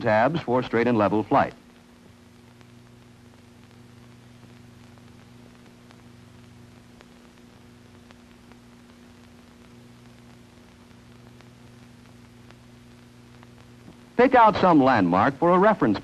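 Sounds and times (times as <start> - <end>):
faint steady hum: 0.0 - 16.0
film soundtrack hiss: 0.0 - 16.0.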